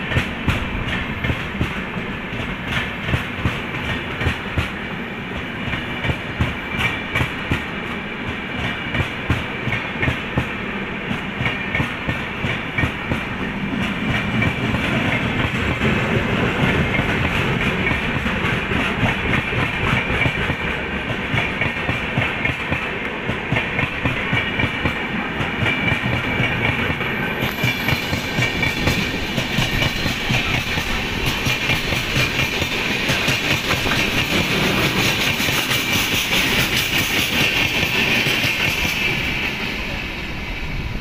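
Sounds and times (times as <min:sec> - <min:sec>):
train wheels clattering over rails: 0:00.0 - 0:40.2.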